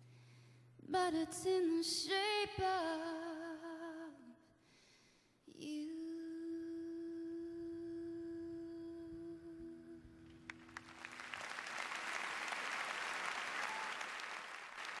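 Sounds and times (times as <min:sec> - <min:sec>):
person singing a ballad: 0:00.8 - 0:04.3, 0:05.5 - 0:10.2
audience applause: 0:10.5 - 0:15.0.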